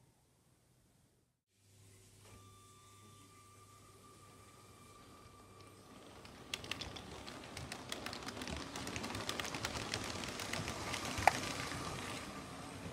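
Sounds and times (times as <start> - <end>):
toy train wheels clicking on track: 6.0 - 12.1.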